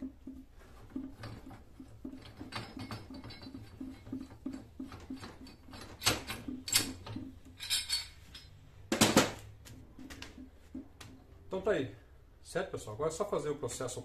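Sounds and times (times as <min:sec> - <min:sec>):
metal clanks and clinks: 0:01.0 - 0:09.1.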